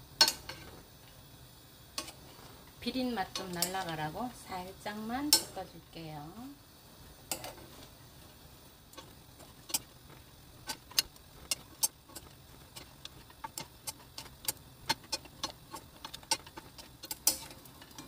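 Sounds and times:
wooden spatulas tapping frying pan: 0:00.2 - 0:00.7, 0:03.3 - 0:04.0, 0:05.2 - 0:05.6, 0:07.3 - 0:07.8, 0:09.0 - 0:18.0.

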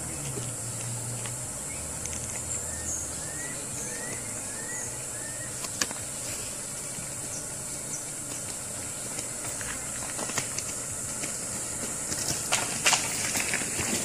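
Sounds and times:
low hum: 0:00.0 - 0:14.0
steady high hiss: 0:00.0 - 0:14.0
bird chirping: 0:01.6 - 0:09.1.

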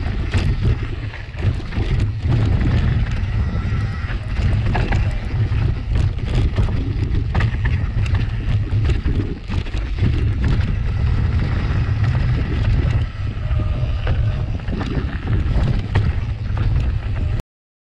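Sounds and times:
bike clicks and rattles: 0:00.0 - 0:17.4
wind buffeting microphone: 0:00.0 - 0:17.4.

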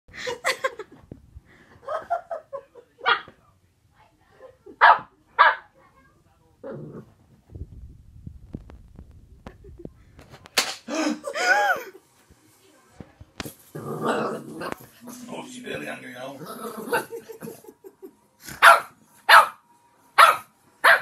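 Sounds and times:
puppy barking: 0:03.0 - 0:03.3, 0:04.8 - 0:05.7, 0:18.6 - 0:19.6, 0:20.2 - 0:21.0
low rumbling rustle: 0:07.0 - 0:10.3.

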